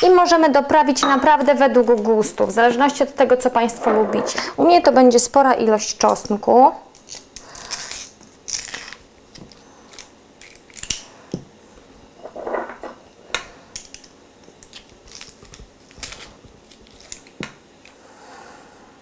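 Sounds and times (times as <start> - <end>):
garlic clove crunch: 6.1 - 11.1, 13.7 - 17.4.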